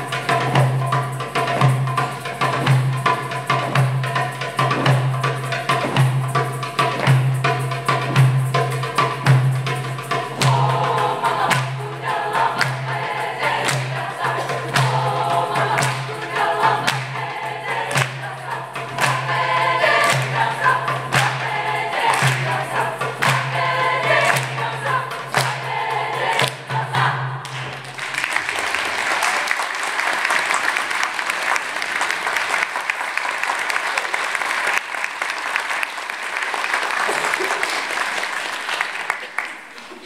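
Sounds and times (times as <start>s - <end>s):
steady beat: 0.0s - 27.5s
choir singing: 9.7s - 27.9s
audience applause: 27.4s - 40.0s.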